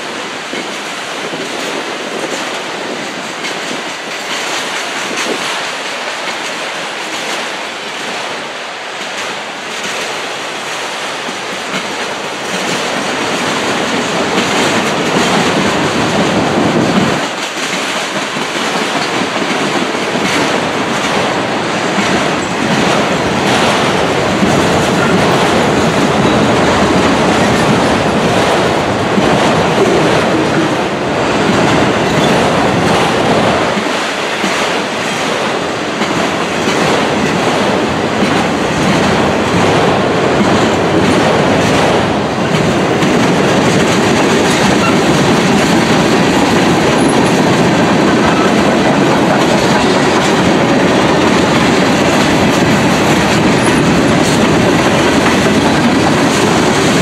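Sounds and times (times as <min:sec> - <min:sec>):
steel wheels clicking over rail joints: 0:09.0 - 0:57.0.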